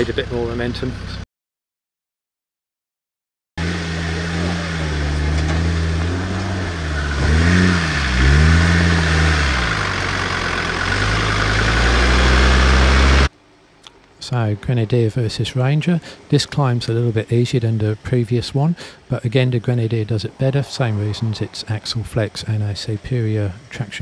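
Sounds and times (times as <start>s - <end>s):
diesel engine labouring uphill: 3.6s - 13.3s.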